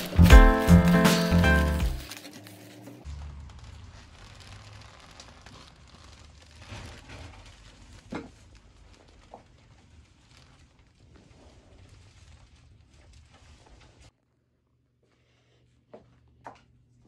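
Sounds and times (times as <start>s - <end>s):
paper wrapping crinkling: 0.0s - 14.1s.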